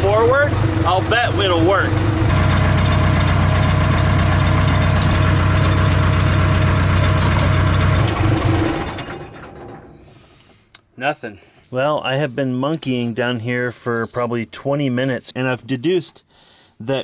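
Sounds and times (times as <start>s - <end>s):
diesel engine idling: 0.0s - 10.3s.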